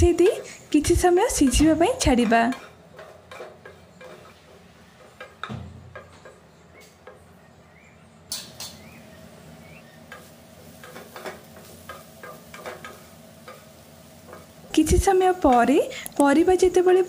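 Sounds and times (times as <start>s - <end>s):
faint frying sizzle: 0.0s - 17.0s
wooden spatula scraping a pan: 1.2s - 5.4s.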